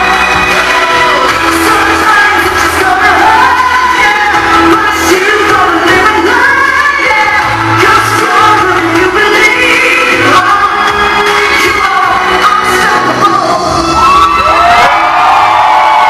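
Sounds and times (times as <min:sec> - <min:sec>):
person singing into microphone: 0:00.0 - 0:14.4
loud backing music: 0:00.0 - 0:16.0.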